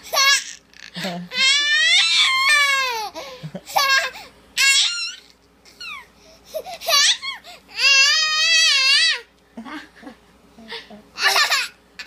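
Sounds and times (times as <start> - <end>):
baby laughing: 0.0 - 8.0, 11.2 - 11.8.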